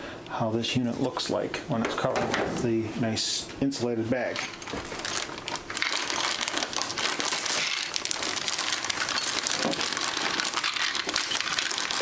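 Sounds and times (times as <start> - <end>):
plastic bag crinkling: 4.4 - 12.0
small parts clinking: 8.8 - 12.0.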